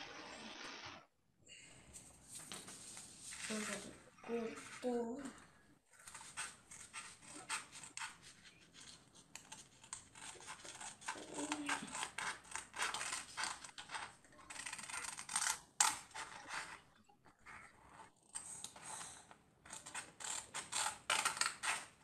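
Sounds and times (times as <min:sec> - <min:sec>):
scissors snipping paper: 0:06.0 - 0:16.8, 0:17.9 - 0:22.0.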